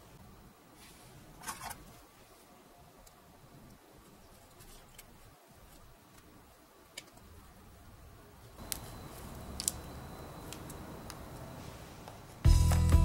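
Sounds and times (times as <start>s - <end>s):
soft glove rustling: 0.7s - 2.6s.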